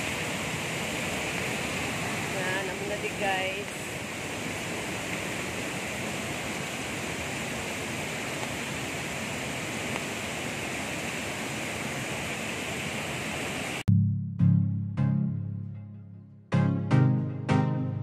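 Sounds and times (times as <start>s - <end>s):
floodwater rushing over rocks: 0.0s - 13.8s.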